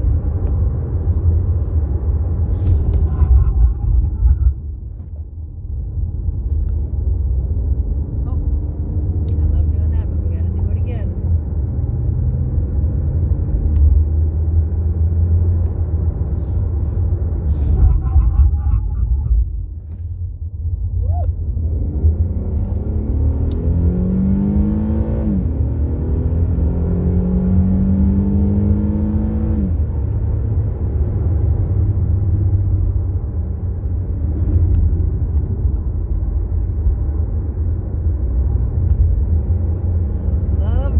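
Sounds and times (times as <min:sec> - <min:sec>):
road and tyre rumble: 0:00.0 - 0:40.9
car engine accelerating: 0:21.1 - 0:33.3.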